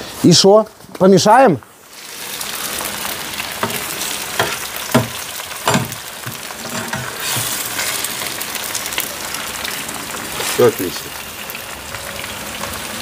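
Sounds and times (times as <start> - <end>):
potatoes sizzling in a frying pan: 0.0 - 13.0
metal spatula scraping a pan: 3.6 - 8.0.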